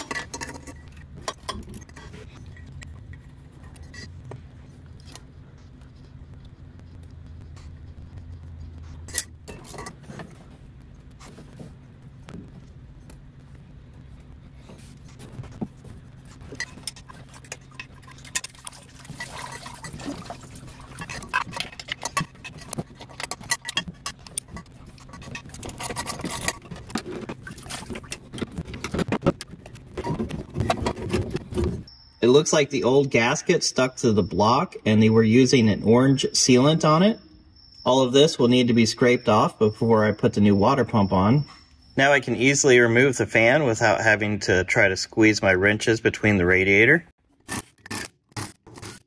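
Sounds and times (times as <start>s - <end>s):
steady low hum: 0.0s - 47.1s.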